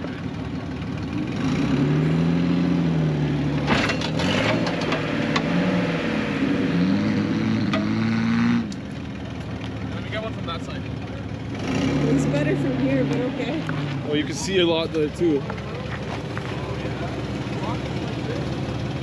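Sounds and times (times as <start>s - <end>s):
engine revving: 1.1s - 8.9s, 11.3s - 14.9s.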